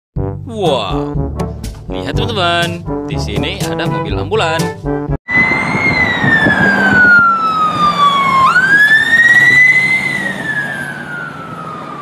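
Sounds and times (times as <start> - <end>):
ambulance siren wailing: 5.3 - 12.0.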